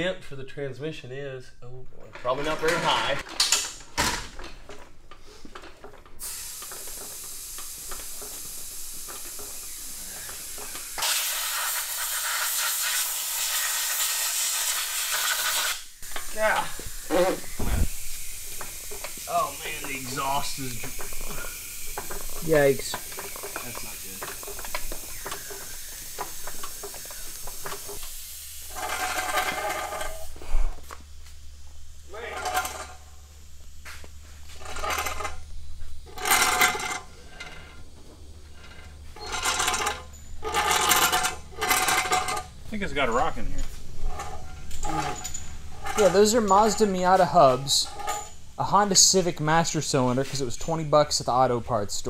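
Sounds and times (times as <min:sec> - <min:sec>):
compressed air hissing from blow gun: 0:06.2 - 0:30.9.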